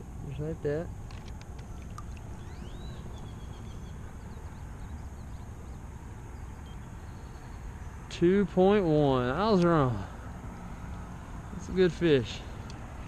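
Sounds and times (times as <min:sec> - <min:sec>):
high insect drone: 0:00.0 - 0:13.0
bird chirp: 0:01.3 - 0:10.3.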